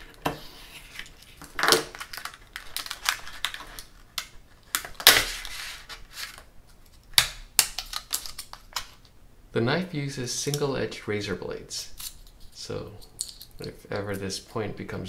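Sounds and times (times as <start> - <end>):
plastic packaging crinkling: 0.7 - 9.1.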